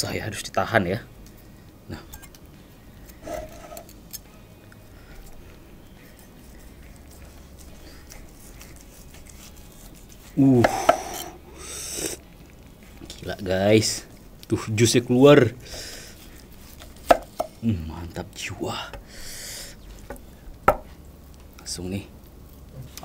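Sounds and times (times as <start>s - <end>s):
knife slicing through grilled meat: 3.0s - 4.3s, 5.9s - 12.2s.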